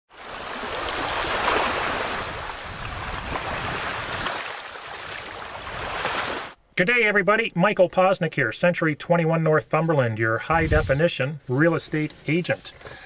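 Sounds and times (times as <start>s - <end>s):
rushing water: 0.1s - 6.6s.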